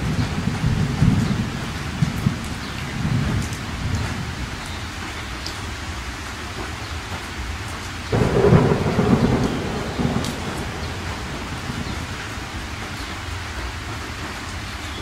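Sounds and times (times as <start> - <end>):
steady rain: 0.0 - 15.0
thunder clap rumbling: 8.1 - 13.6.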